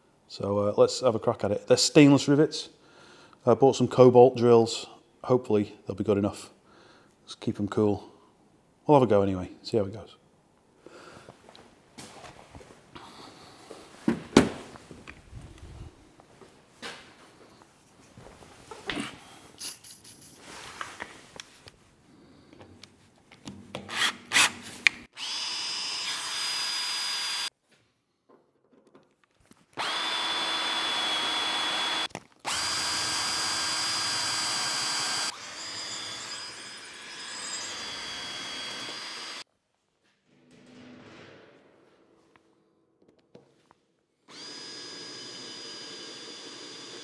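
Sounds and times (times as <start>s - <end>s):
drill whining through metal: 25.2s - 27.5s, 29.8s - 39.4s, 44.3s - 47.0s
knocks and clatters: 40.0s - 43.6s.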